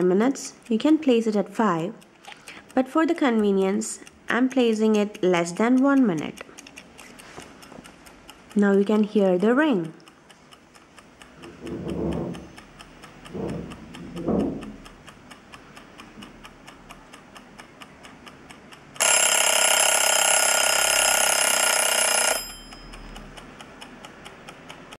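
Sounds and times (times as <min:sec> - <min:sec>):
kitchen timer ticking: 0:00.0 - 0:25.0
timer bell ringing: 0:19.0 - 0:23.4.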